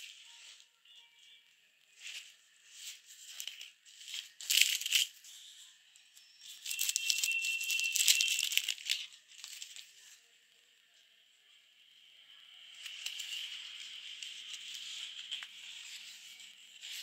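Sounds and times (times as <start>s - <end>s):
plastic film crinkling: 1.9s - 5.3s, 6.4s - 10.2s, 12.8s - 17.0s
paper rustling: 2.0s - 5.2s, 6.5s - 10.2s, 12.8s - 17.0s.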